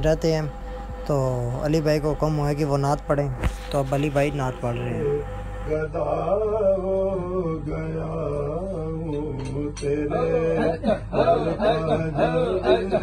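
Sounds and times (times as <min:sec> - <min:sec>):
man singing devotional poem: 0:04.7 - 0:13.0.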